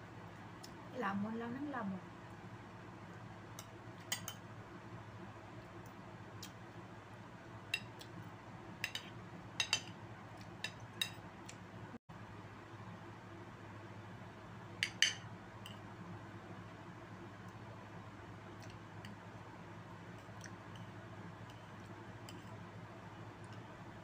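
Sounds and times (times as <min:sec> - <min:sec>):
low steady hum: 0:00.0 - 0:24.0
cutlery clinking on ceramic: 0:03.6 - 0:04.4, 0:08.8 - 0:09.9.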